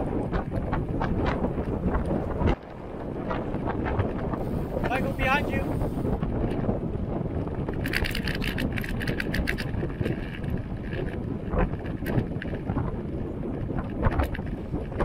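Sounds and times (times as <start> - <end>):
wind buffeting microphone: 0.0 - 15.0
rapid clicks: 7.7 - 12.6.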